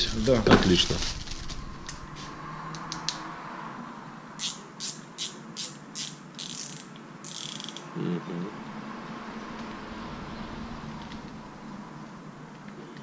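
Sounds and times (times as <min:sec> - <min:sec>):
fishing reel clicks: 0:04.4 - 0:07.9
fishing reel ratcheting: 0:04.4 - 0:07.9.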